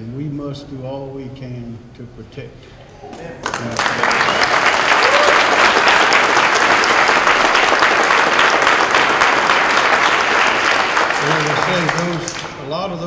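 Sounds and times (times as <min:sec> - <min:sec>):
crowd clapping: 0:03.1 - 0:13.0.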